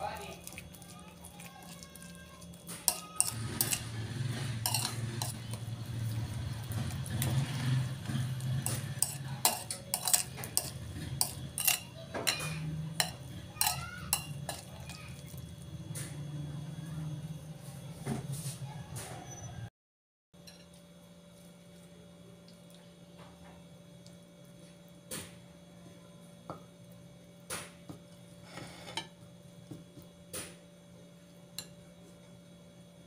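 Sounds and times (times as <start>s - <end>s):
metal spoon stirring in bowl: 0.0s - 15.4s
spoon clinking against bowl: 2.9s - 3.8s, 4.6s - 5.4s, 8.6s - 14.9s.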